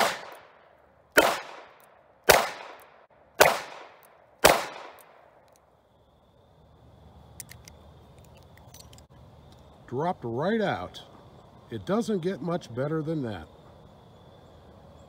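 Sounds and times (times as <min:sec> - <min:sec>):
revolver shots with echo: 0:00.0 - 0:00.6, 0:01.2 - 0:05.0.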